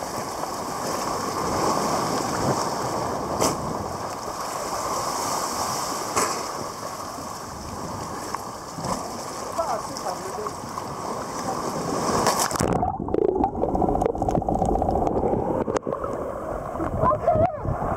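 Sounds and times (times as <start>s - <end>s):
sea water sloshing: 0.0s - 17.2s.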